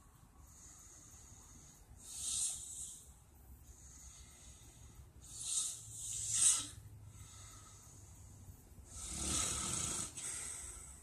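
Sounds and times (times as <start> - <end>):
man snoring: 8.9 - 10.6.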